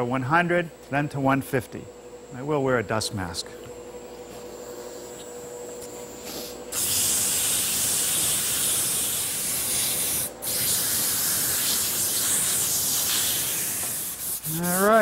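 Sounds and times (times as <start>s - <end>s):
sandpaper hissing on spinning wood: 6.2s - 15.0s.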